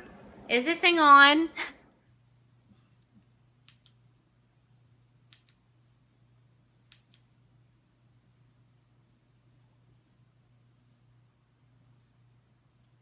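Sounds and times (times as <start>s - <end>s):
low steady hum: 0.0s - 13.0s
faint sharp clicks: 3.0s - 4.0s, 5.3s - 5.6s, 6.9s - 7.3s.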